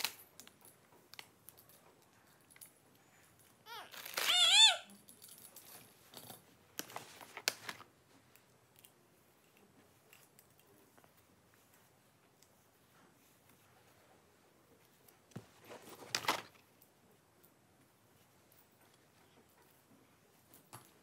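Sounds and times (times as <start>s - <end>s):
hair being handled rustling: 0.0s - 17.0s
toddler high-pitched vocal sound: 3.6s - 4.9s.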